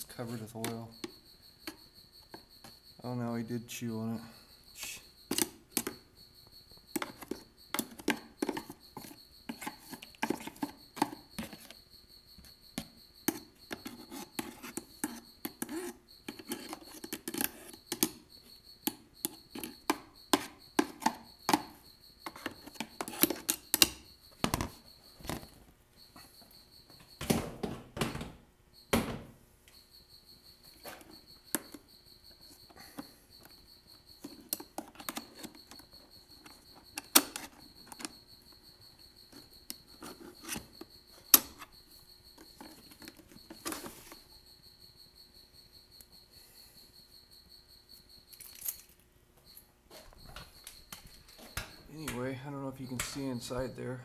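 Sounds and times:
tool scraping plastic: 7.0s - 11.8s, 13.3s - 18.1s, 39.3s - 41.7s.

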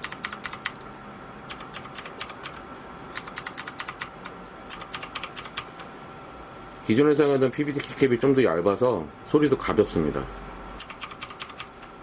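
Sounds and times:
mechanical keyboard keystrokes: 0.0s - 0.8s, 1.5s - 2.6s, 3.2s - 5.9s, 10.8s - 11.9s.

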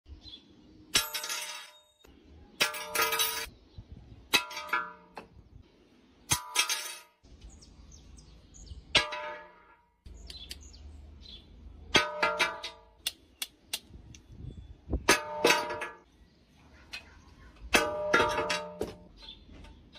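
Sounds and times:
metal tools clinking on glass: 1.0s - 3.5s.

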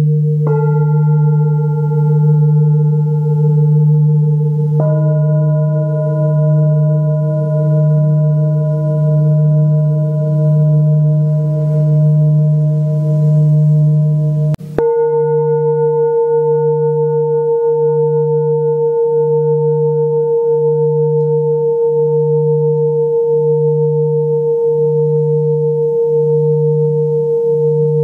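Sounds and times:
throbbing low hum: 0.0s - 14.9s
singing bowl ringing: 0.0s - 28.0s.

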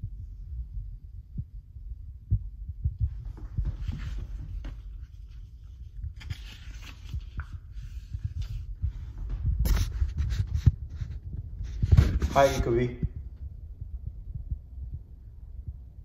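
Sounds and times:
footsteps thumping: 3.0s - 5.0s
clothing rustle: 3.2s - 12.8s.

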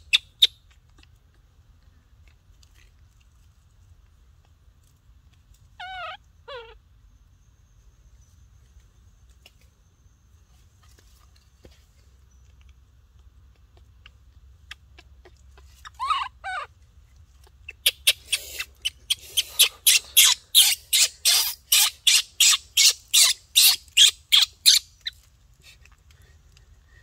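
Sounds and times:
bird squeaky calls: 5.8s - 6.8s, 15.6s - 16.7s, 17.7s - 25.2s
bird harsh squawks: 17.8s - 24.8s.

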